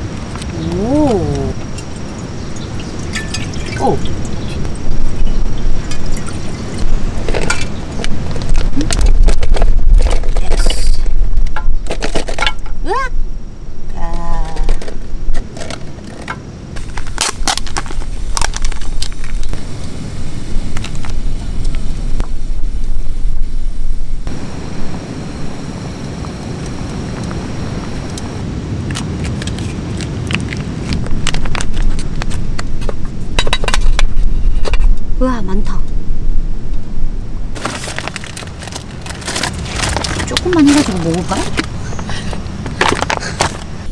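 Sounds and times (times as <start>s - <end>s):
steady background noise: 0.0s - 43.9s
plastic pouch crinkling: 16.8s - 19.6s, 37.6s - 41.7s.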